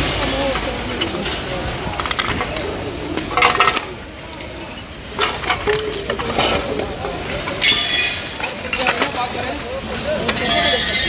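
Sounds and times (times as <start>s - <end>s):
ceramic plates clinking: 0.9s - 9.6s.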